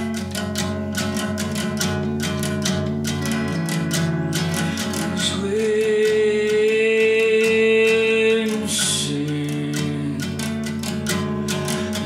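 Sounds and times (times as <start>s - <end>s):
acoustic guitar picking: 0.0s - 12.0s
man singing long note: 5.0s - 10.3s.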